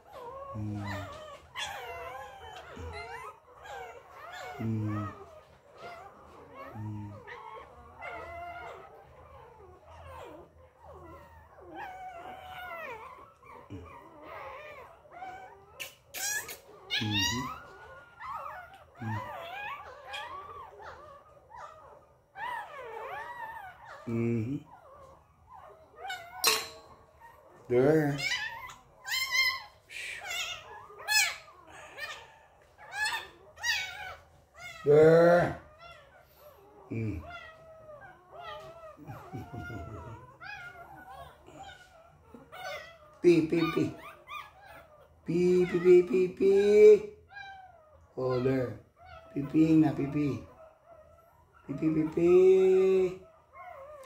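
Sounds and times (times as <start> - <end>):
puppies whining and crying: 0.0 - 54.0.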